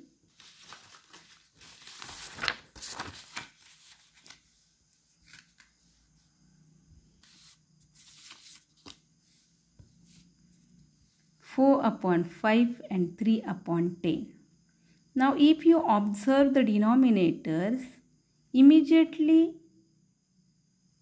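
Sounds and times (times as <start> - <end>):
paper rustling: 0.3 - 6.0, 7.2 - 9.4.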